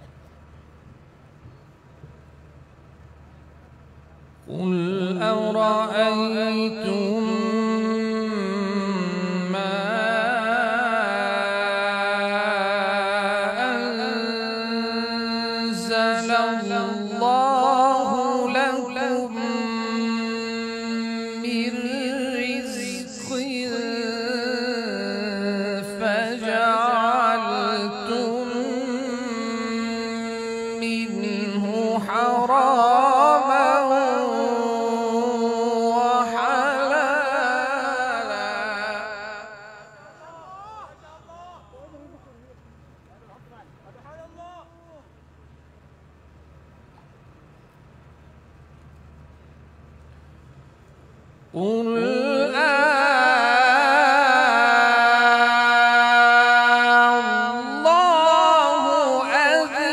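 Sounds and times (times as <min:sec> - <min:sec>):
man chanting into a microphone: 0:04.5 - 0:42.6, 0:51.6 - 0:59.9.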